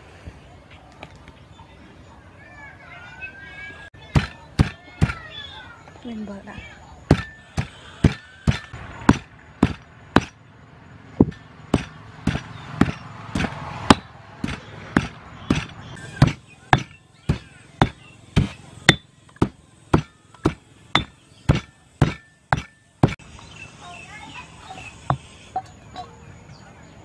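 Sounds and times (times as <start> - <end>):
stone pestle pounding in mortar: 4.1 - 5.2, 7.1 - 10.4, 11.2 - 23.2.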